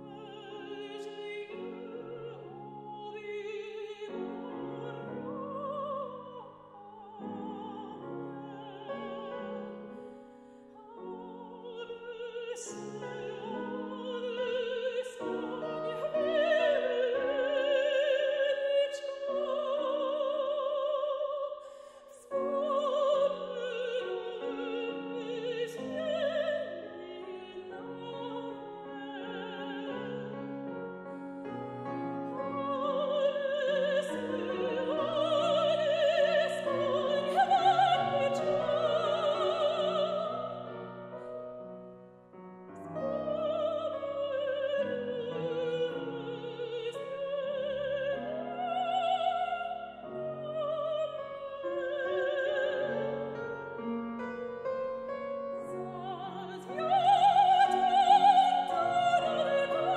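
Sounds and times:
grand piano accompaniment: 0:00.0 - 0:21.4, 0:22.3 - 0:59.9
soprano singing with vibrato: 0:00.0 - 0:41.3, 0:42.8 - 0:59.9.

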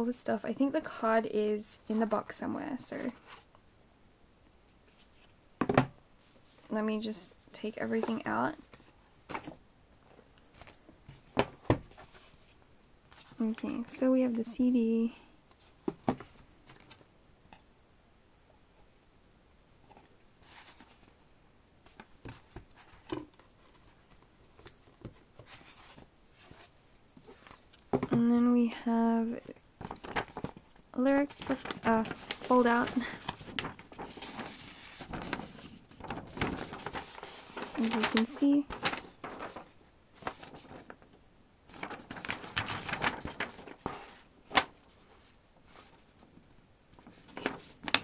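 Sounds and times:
paper rustling and crinkling: 0:07.6 - 0:14.0, 0:19.9 - 0:21.2, 0:21.8 - 0:28.1, 0:29.8 - 0:46.3, 0:47.0 - 0:48.0
sharp paper crack: 0:31.3 - 0:41.0, 0:41.7 - 0:44.8, 0:47.1 - 0:48.0
packaging rustling and sliding: 0:31.3 - 0:41.1, 0:41.7 - 0:46.1.

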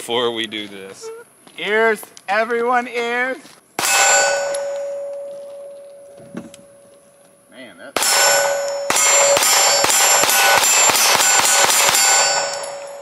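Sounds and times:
pistol shots: 0:03.8 - 0:04.8, 0:08.0 - 0:13.0
steel targets clanging: 0:03.8 - 0:05.2, 0:08.0 - 0:13.0.

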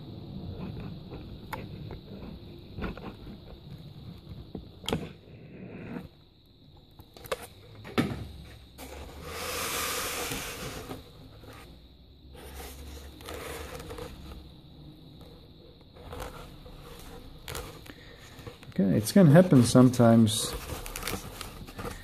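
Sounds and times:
steady hiss: 0:07.5 - 0:22.0.

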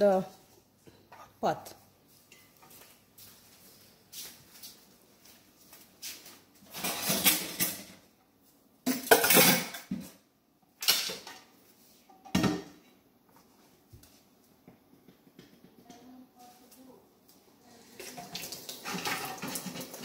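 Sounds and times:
metal pot clattering in sink: 0:08.9 - 0:09.9, 0:18.0 - 0:20.0.

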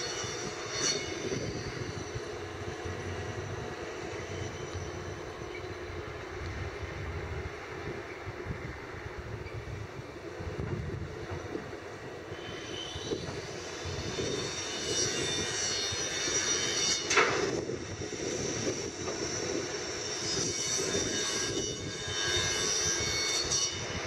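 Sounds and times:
high squeal: 0:00.0 - 0:06.4, 0:12.2 - 0:24.0.

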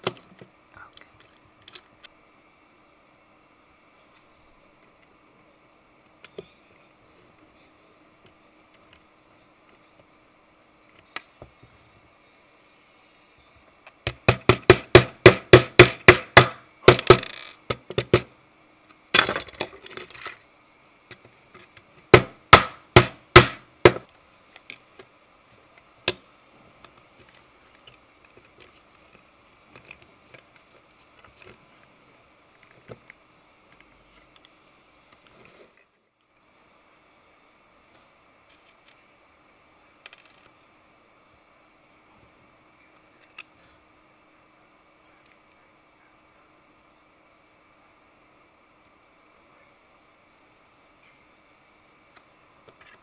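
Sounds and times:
sharp knocks on hard plastic: 0:14.1 - 0:18.3, 0:22.1 - 0:24.1.

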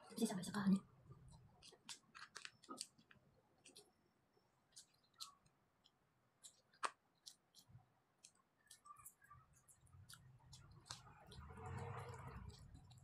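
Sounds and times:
chopsticks clicking and tapping: 0:01.2 - 0:03.9, 0:04.7 - 0:13.0.

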